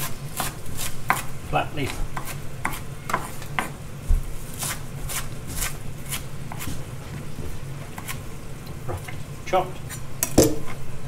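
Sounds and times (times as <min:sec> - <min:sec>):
knife chopping on wooden board: 0:00.4 - 0:06.8.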